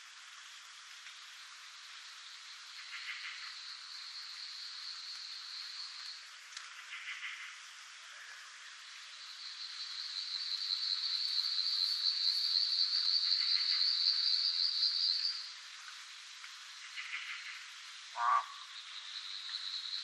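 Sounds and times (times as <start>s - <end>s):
scattered frog calls: 2.7s - 7.7s, 8.9s - 15.5s, 16.8s - 20.0s
frog high trill: 18.2s - 18.6s.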